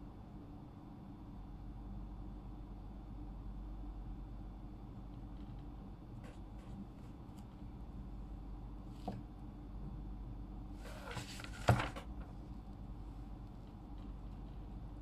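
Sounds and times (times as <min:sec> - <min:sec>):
paper rustling: 0:10.8 - 0:12.3.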